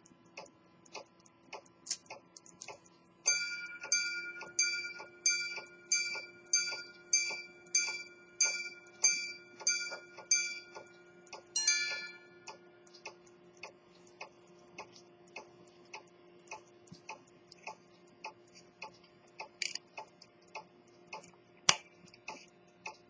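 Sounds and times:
fast watch ticking: 0.0 - 23.0
two-tone ding-dong chime: 3.3 - 10.8, 11.6 - 12.2
pocket watch striking gongs: 3.3 - 10.9, 11.6 - 12.5.

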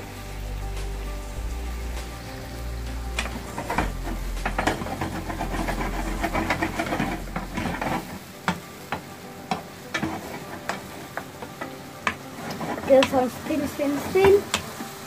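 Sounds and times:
food sizzling in wok: 0.0 - 15.0
wooden spatula scraping and knocking: 3.2 - 14.8.

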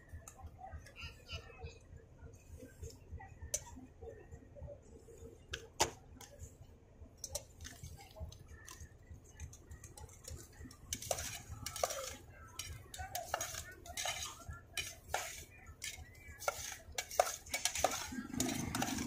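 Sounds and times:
spoon and jars clicking and tapping: 9.5 - 19.0.

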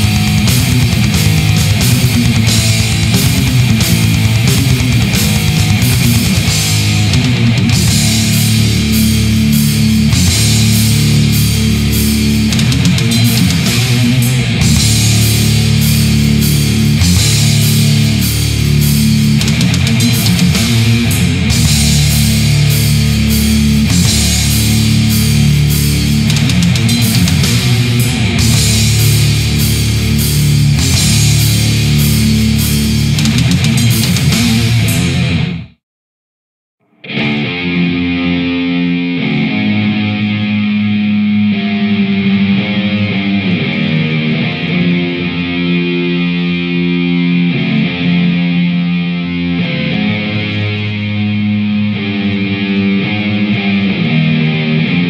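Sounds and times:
drums and cymbals: 0.0 - 35.5
distorted electric guitar riff: 0.0 - 35.8, 36.8 - 55.0.

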